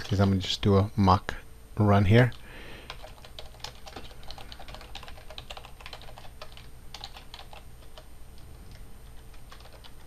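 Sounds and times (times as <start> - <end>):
typing on a computer keyboard: 2.9 - 8.1, 8.7 - 10.0.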